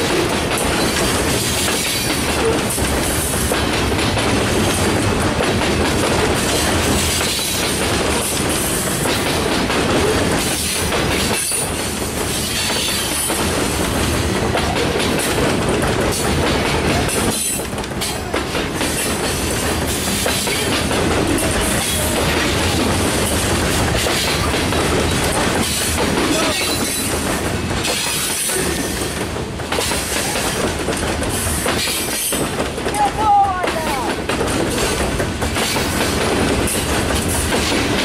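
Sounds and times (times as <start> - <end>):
freight train rumble and rattle: 0.0 - 38.0
steel wheels clacking on rail joints: 0.0 - 38.0.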